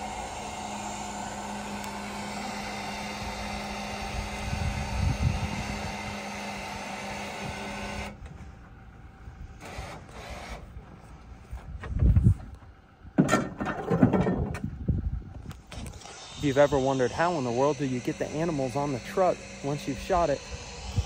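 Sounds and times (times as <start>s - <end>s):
steady machine hum: 0.0s - 21.0s.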